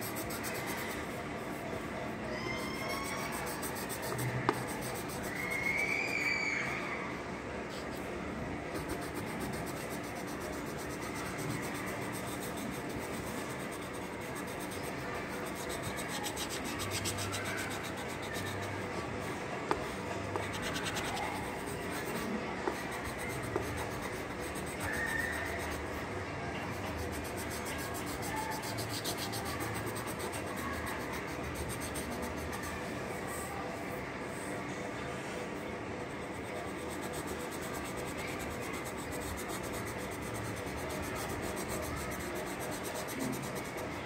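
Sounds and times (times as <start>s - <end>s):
pencil scratching on paper: 0.0s - 1.6s, 2.7s - 5.5s, 8.7s - 19.1s, 19.7s - 26.0s, 26.7s - 33.4s, 36.2s - 44.0s.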